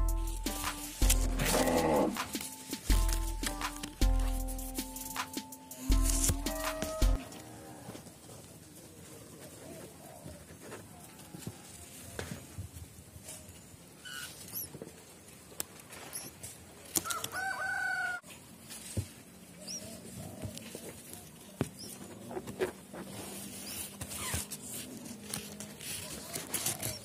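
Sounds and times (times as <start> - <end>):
leaves and twigs rustling: 0.3 - 4.8, 5.8 - 27.0
rooster crowing: 6.5 - 8.2, 17.0 - 18.3.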